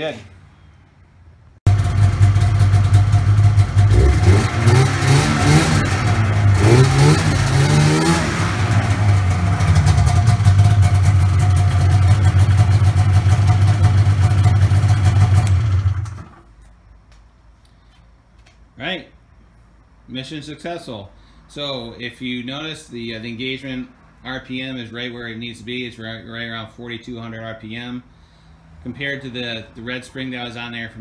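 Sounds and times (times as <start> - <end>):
snowmobile engine revving and idling: 1.7 - 16.4.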